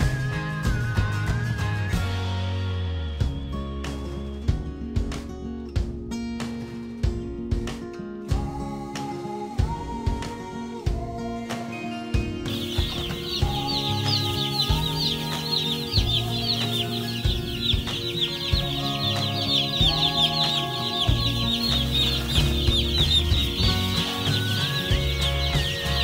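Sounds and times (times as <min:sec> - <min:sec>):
background music: 0:00.0 - 0:26.0
chicks peeping: 0:12.4 - 0:26.0.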